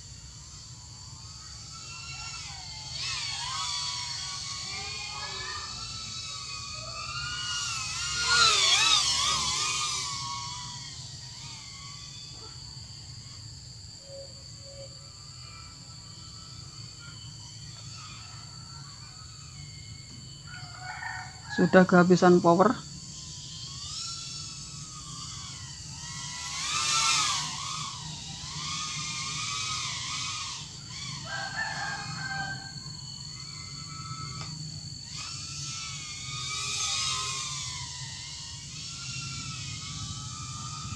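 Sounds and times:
drone propellers whining: 0.0s - 40.9s
rooster crowing: 1.8s - 10.1s, 18.2s - 22.7s, 26.1s - 37.4s.

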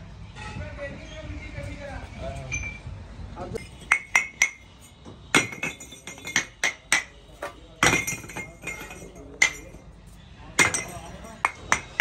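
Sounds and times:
metal sleeves clinking on a heap: 3.6s - 9.8s.

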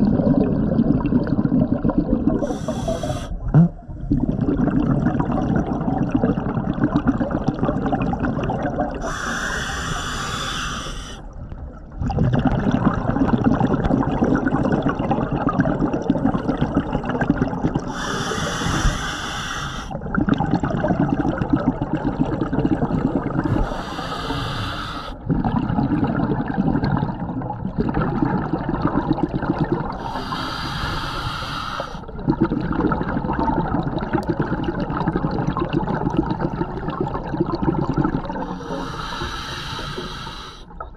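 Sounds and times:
bubbling exhale underwater: 0.0s - 40.9s
regulator hissing inhale: 2.4s - 3.4s, 9.0s - 11.3s, 17.9s - 20.0s, 23.5s - 25.2s, 30.0s - 32.1s, 38.4s - 40.7s.

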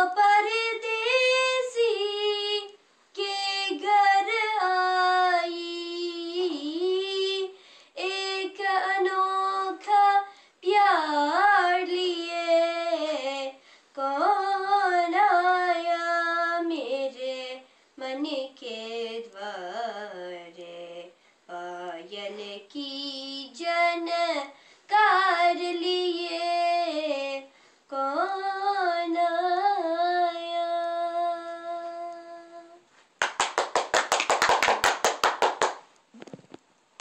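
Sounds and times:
girl singing unaccompanied: 0.0s - 32.9s
hand clapping: 33.2s - 35.8s.

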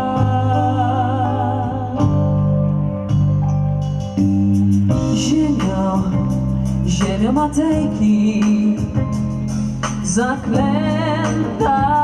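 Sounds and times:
vocal ensemble singing slow song: 0.0s - 2.7s, 5.0s - 12.0s.

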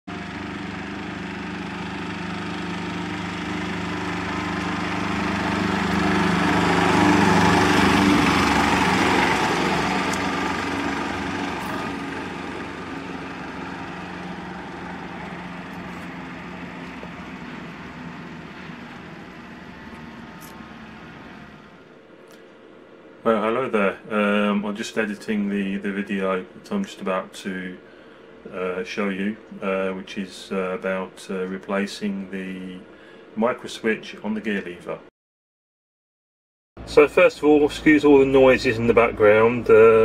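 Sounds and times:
small diesel van driving by: 0.1s - 21.9s, 36.8s - 40.0s.

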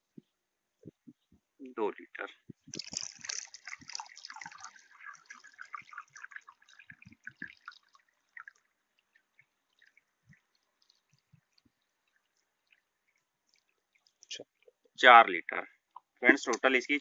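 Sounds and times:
water dripping: 2.5s - 15.0s, 15.8s - 16.8s
water splashing into plastic pot: 2.7s - 14.9s.

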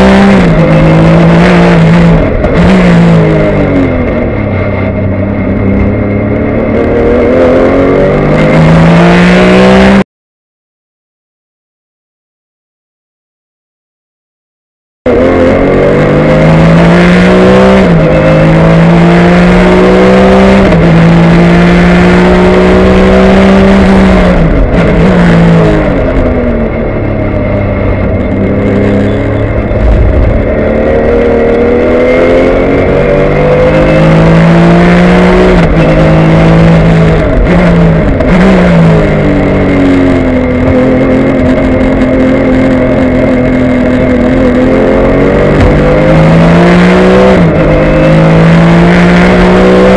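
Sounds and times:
racing car engine shifting gears: 15.1s - 49.9s.

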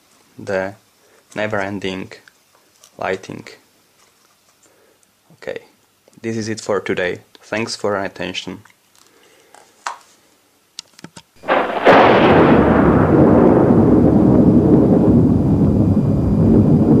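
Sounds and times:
loud low rumble: 11.5s - 17.0s.

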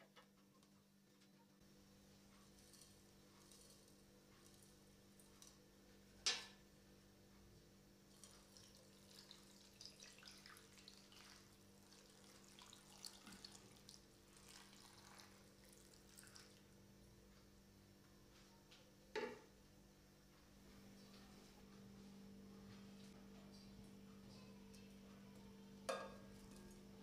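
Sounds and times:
water trickling and splashing: 8.1s - 16.7s.

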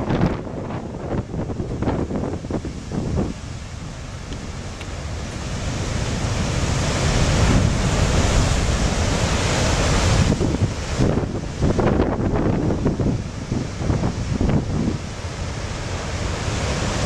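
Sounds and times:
wind buffeting microphone: 0.0s - 15.4s
surf breaking on rocks: 1.8s - 13.1s.

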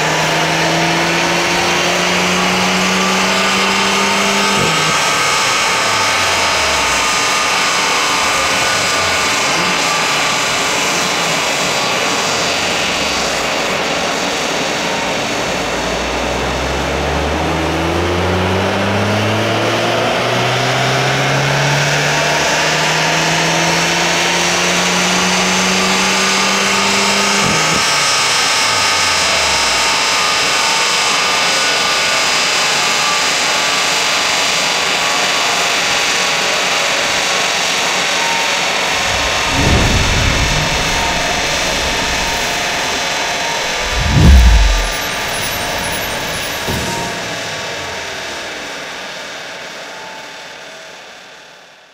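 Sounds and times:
car engine revving: 38.9s - 46.8s.

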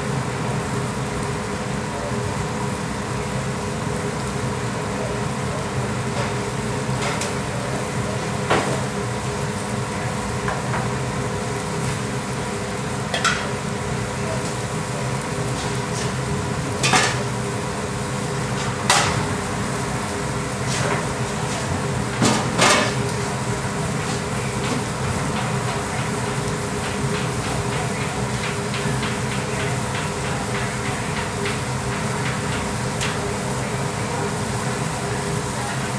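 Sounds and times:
hum of gas burners and machinery: 0.0s - 35.9s
pans and utensils clanking: 13.1s - 13.5s.

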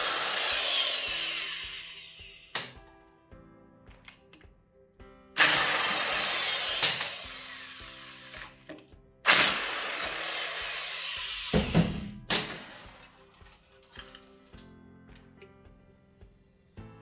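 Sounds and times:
background music: 0.0s - 17.0s
power wrench loosening bolts: 5.4s - 11.5s.

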